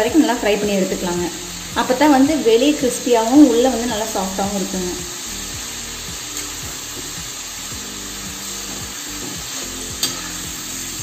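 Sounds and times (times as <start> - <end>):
oil sizzling and bubbling: 0.0 - 11.0
metal spoon clicking on pan: 10.0 - 10.4.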